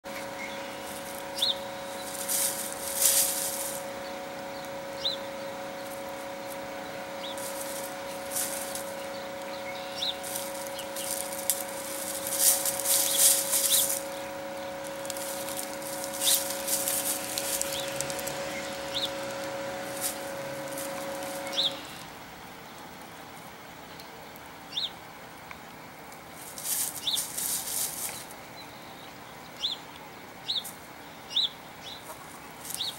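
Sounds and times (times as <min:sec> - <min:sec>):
hens scratching in dry leaves: 0:00.0 - 0:22.1, 0:26.2 - 0:28.5, 0:30.5 - 0:31.0, 0:32.0 - 0:32.9
steady low hum: 0:00.0 - 0:32.9.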